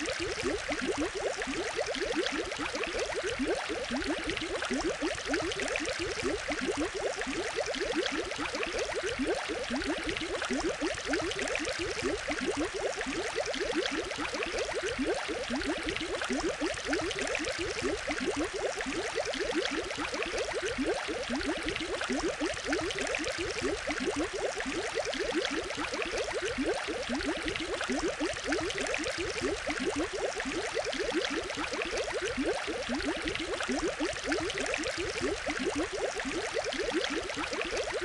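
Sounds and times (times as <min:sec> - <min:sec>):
aquarium water bubbling: 0:00.0 - 0:38.0.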